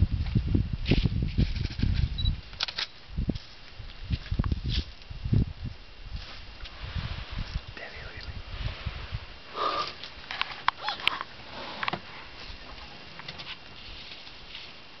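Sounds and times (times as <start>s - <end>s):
faint outdoor background: 0.0s - 15.0s
breathy sniff: 9.5s - 10.0s.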